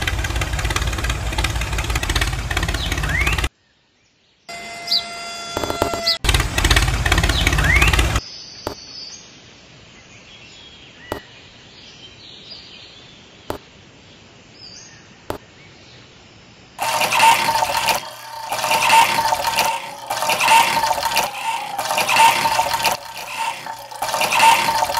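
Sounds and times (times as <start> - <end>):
water gushing into metal can: 16.8 - 24.9.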